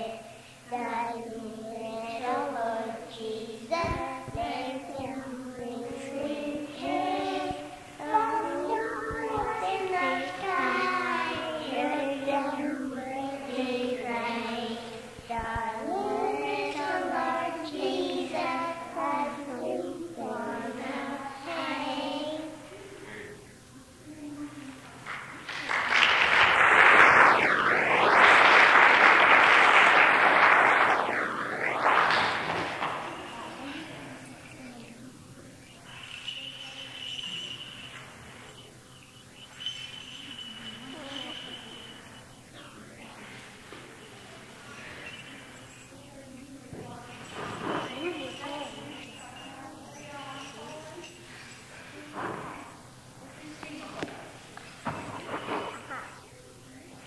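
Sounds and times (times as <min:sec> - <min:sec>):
choir with children singing: 0:00.0 - 0:23.4, 0:32.6 - 0:42.8, 0:46.9 - 0:52.5
congregation applauding: 0:25.0 - 0:27.2, 0:28.2 - 0:30.9.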